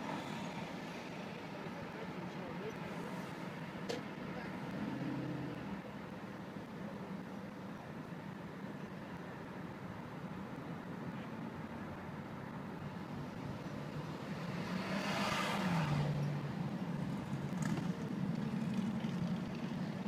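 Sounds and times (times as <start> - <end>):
car engine and road noise: 0.0 - 20.0
vehicle passing by: 13.9 - 20.0.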